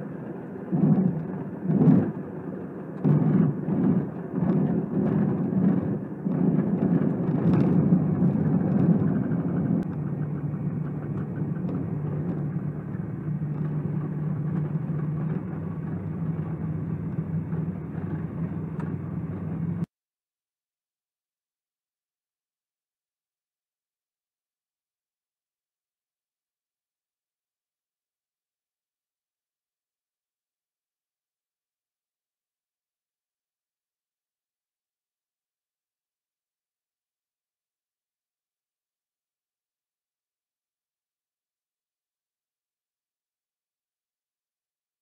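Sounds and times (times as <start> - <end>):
propeller engine hum: 0.0 - 19.9.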